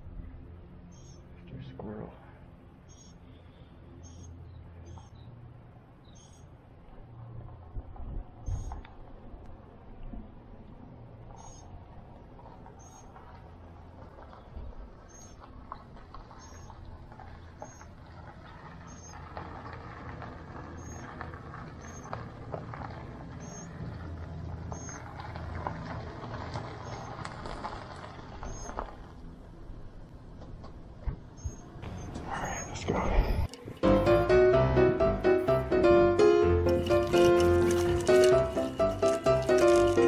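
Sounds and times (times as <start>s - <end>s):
steady low rumble: 0.0s - 40.0s
ground squirrel chirping: 0.9s - 1.2s, 20.8s - 21.1s
rustling and small clicks: 36.7s - 40.0s.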